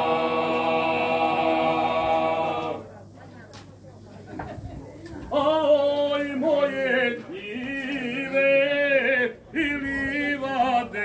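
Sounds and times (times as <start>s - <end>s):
male vocal group singing in harmony: 0.0s - 2.8s, 5.4s - 11.0s.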